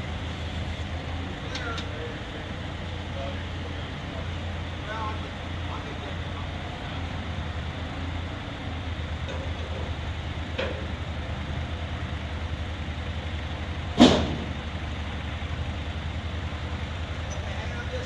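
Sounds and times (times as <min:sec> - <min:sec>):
forklift engine running: 0:00.0 - 0:18.0
loud bang: 0:14.0 - 0:14.7.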